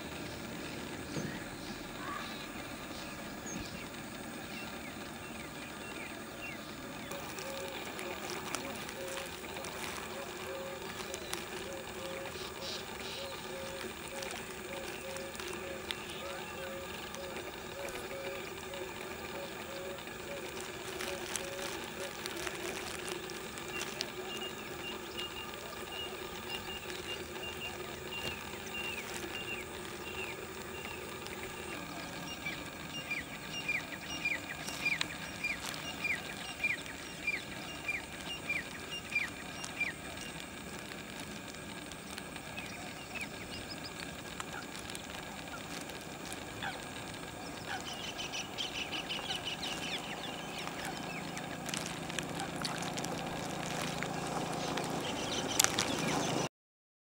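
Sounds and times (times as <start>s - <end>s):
ducklings peeping: 0.0s - 56.5s.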